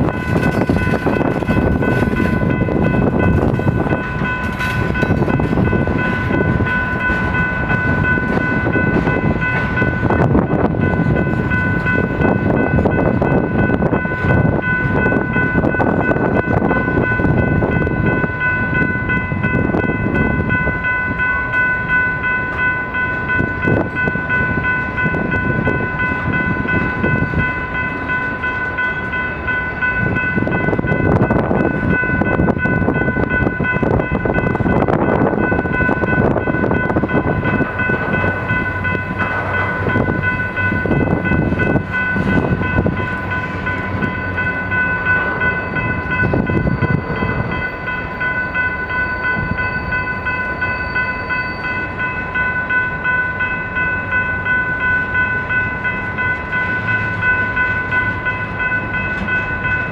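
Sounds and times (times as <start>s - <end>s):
steady high ringing tone: 0.0s - 59.9s
steel wheels rumbling on rail: 0.0s - 59.9s.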